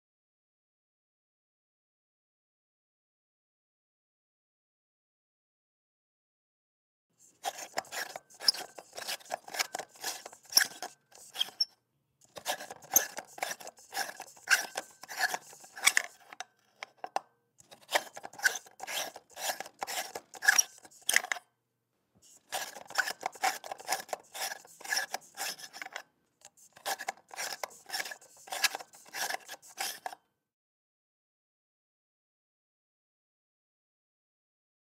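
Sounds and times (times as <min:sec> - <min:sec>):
light bulb squeaking in socket: 0:07.9 - 0:11.7.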